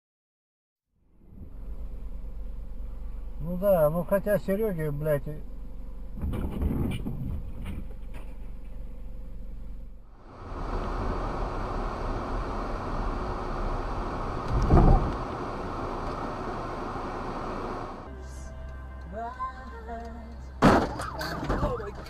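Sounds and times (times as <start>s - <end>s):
car road and engine noise: 1.0s - 22.0s
cyclist hitting car thud: 20.6s - 21.6s.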